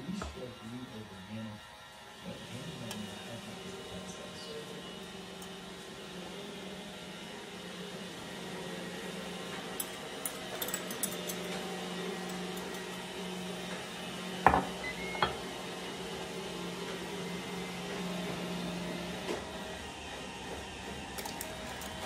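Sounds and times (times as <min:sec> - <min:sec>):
glass jug set down on counter: 0:14.5 - 0:15.4.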